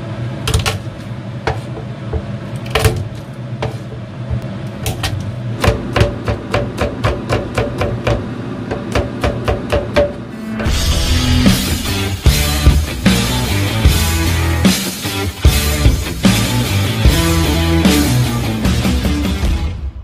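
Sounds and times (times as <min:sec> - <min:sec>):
knife chopping on plastic board: 0:05.6 - 0:10.1.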